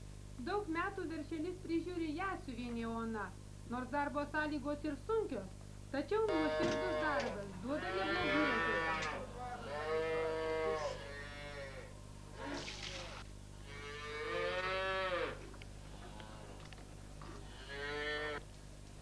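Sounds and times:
calves bawling: 0:06.3 - 0:18.5.

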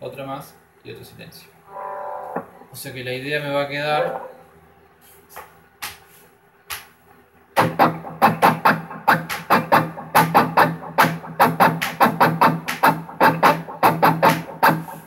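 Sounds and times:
electric guitar chugging chords: 0:07.6 - 0:15.0.

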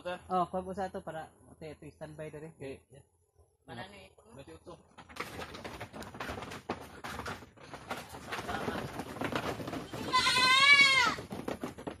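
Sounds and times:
hooves on wooden floor: 0:04.9 - 0:12.0
goat bleating: 0:09.7 - 0:11.4.

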